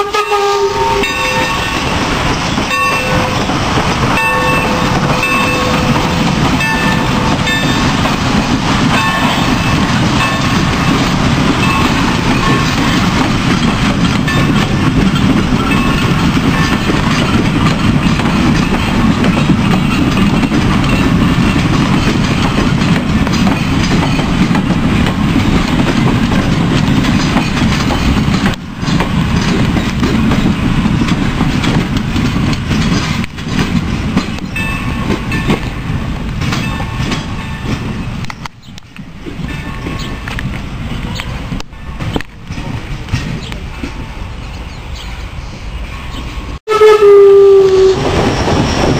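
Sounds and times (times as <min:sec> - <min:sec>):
train wheels rumbling on rails: 0:00.0 - 0:48.9
clickety-clack over rail joints: 0:00.1 - 0:44.2, 0:47.3 - 0:48.9.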